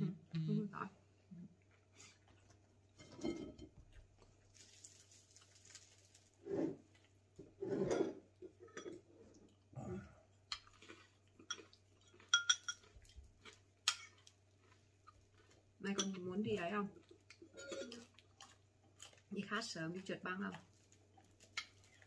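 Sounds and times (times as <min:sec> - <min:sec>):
muffled sounds at table: 0:06.4 - 0:10.2
spoons clinking against ceramic bowls: 0:11.4 - 0:12.9, 0:15.9 - 0:16.2, 0:17.6 - 0:18.1.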